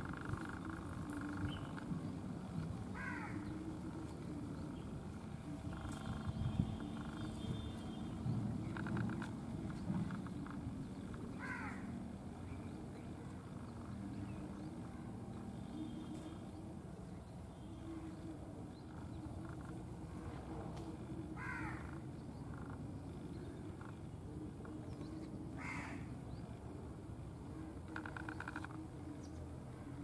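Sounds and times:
bird giving harsh caws: 0:03.0 - 0:03.4, 0:11.4 - 0:11.9, 0:21.4 - 0:22.0, 0:25.6 - 0:26.1.

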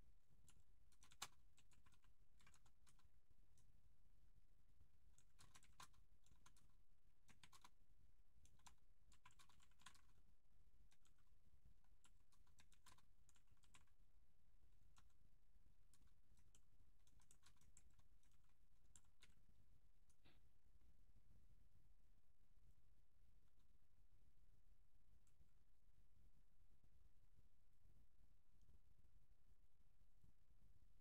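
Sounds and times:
keyboard typing: 0:00.4 - 0:03.7, 0:05.0 - 0:07.8, 0:08.4 - 0:10.2, 0:10.9 - 0:14.0, 0:15.8 - 0:19.4.

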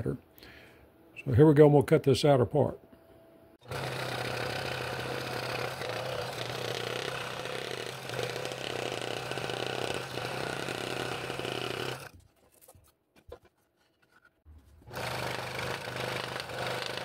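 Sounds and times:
motor hum: 0:03.6 - 0:12.2, 0:14.8 - 0:17.0
scroll saw cutting wood: 0:03.6 - 0:12.2, 0:14.8 - 0:17.0.

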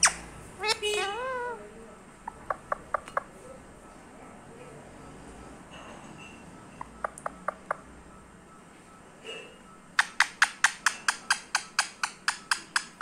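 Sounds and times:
parrot clicking: 0:07.0 - 0:07.8, 0:10.0 - 0:13.0.

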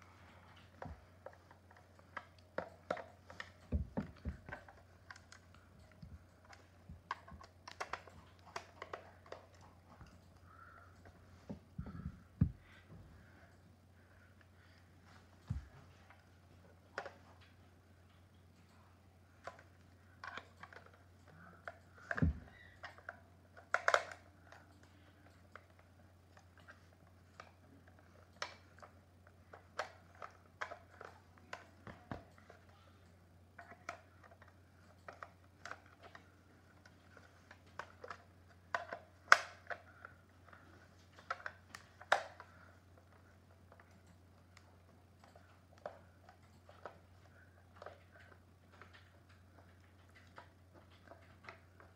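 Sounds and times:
plastic clicks and knocks: 0:00.7 - 0:10.2.

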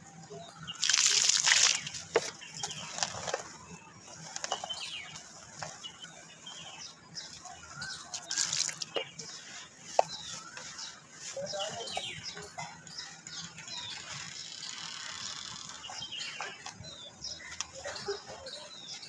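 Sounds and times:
dirt powder pouring onto mud: 0:00.8 - 0:02.0, 0:08.2 - 0:08.9.

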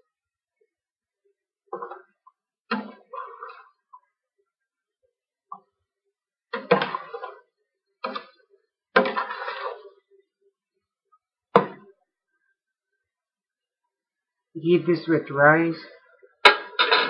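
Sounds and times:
ladle scraping and clinking pot: 0:09.0 - 0:09.9.

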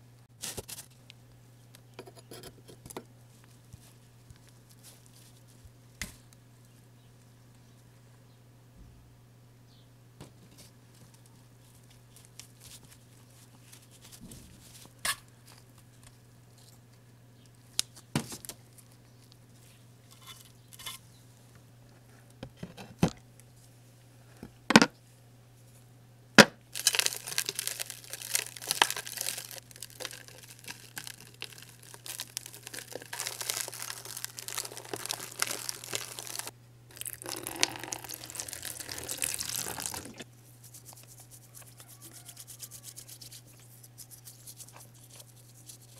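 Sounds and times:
water pouring into plastic tub: 0:32.0 - 0:40.2.

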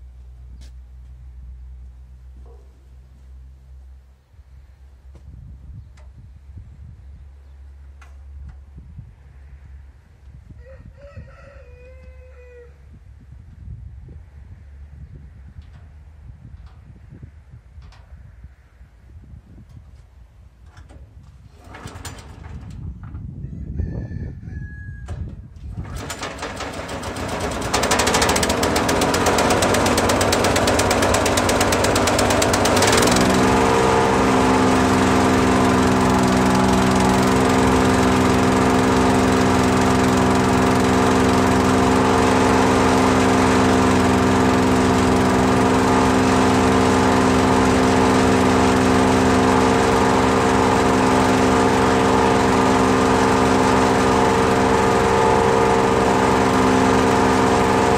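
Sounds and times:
wood chipper engine running: 0:21.5 - 0:22.8, 0:25.7 - 0:57.9.

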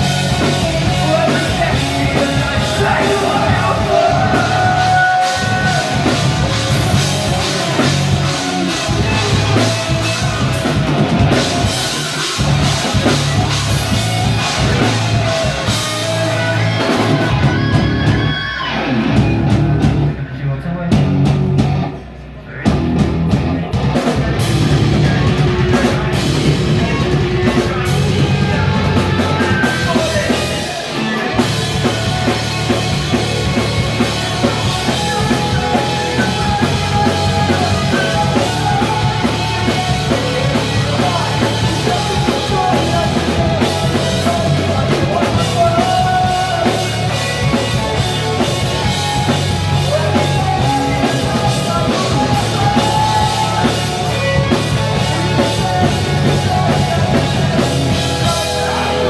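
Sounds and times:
person singing into microphone: 0:00.0 - 0:07.6, 0:49.7 - 0:59.0
drum kit: 0:00.0 - 0:20.3, 0:20.9 - 0:59.0
bass guitar: 0:00.0 - 0:59.0
electric guitars: 0:00.0 - 0:59.0.

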